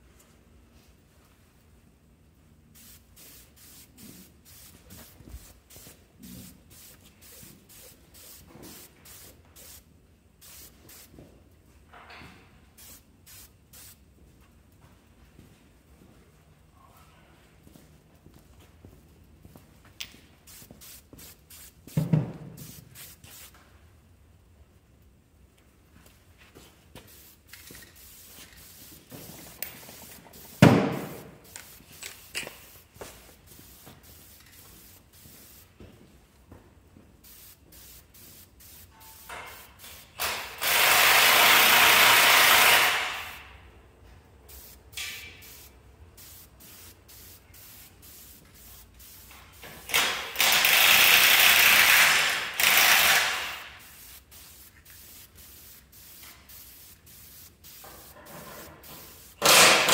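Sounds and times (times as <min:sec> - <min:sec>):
spray can hissing: 0:02.8 - 0:11.2, 0:12.8 - 0:14.0, 0:20.4 - 0:23.6, 0:27.0 - 0:35.8, 0:37.2 - 0:43.4, 0:44.5 - 0:59.8.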